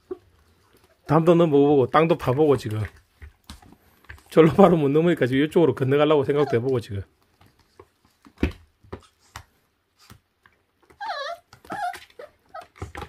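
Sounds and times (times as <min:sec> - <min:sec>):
puppy whimpering: 0:06.2 - 0:06.8, 0:10.8 - 0:13.0.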